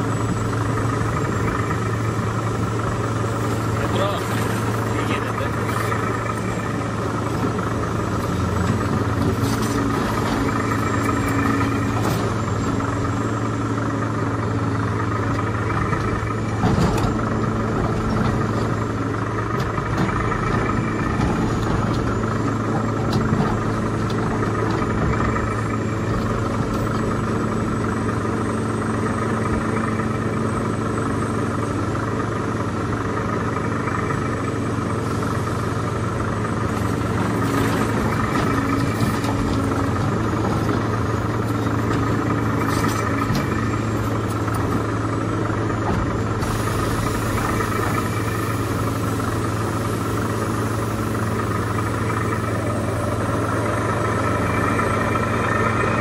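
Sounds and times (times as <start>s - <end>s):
engine idling drone: 0.0s - 56.0s.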